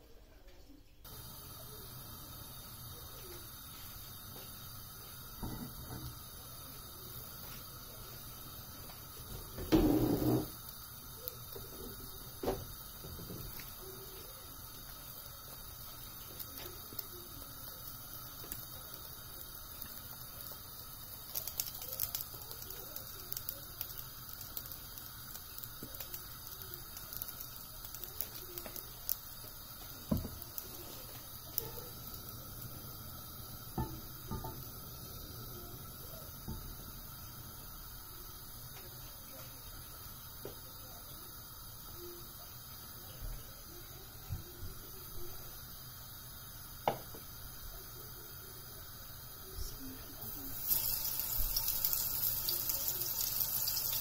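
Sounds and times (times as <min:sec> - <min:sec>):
low steady hiss: 0:00.0 - 0:54.0
frying pan crackling and popping: 0:01.0 - 0:54.0
oil being poured into pan: 0:50.4 - 0:54.0.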